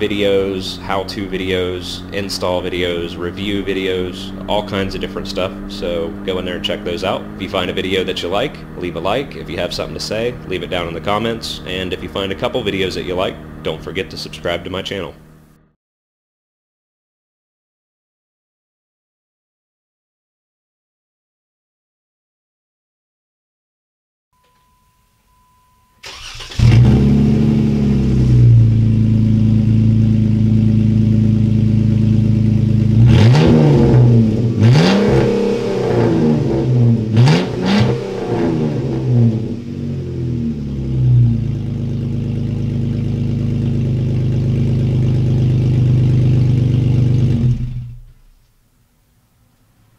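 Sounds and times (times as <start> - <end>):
loud engine idling: 0.0 - 15.4, 26.1 - 48.1
engine revving: 0.0 - 15.6, 26.0 - 48.3
engine cranking and starting: 26.0 - 28.0, 41.1 - 48.3.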